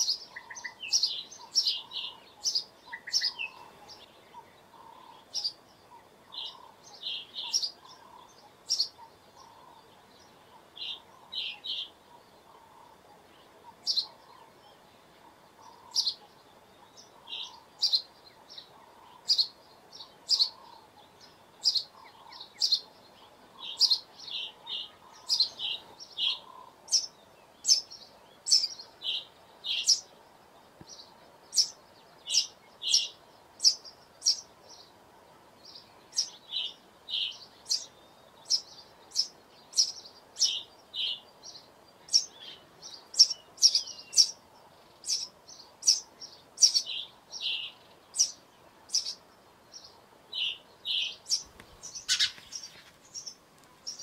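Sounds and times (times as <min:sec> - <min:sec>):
sparrow chirping: 0:00.0 - 0:54.0.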